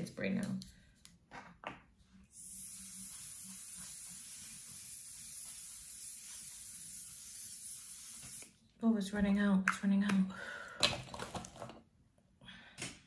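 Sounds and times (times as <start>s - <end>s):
aerosol spray hissing: 2.3s - 8.6s.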